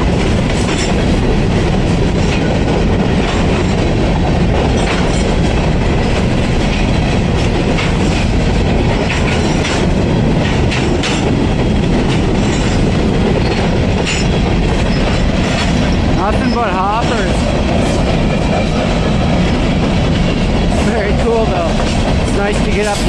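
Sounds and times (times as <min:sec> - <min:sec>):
clanks from wheels and couplings: 0:00.0 - 0:23.0
train wheels rumbling on rail: 0:00.0 - 0:23.0.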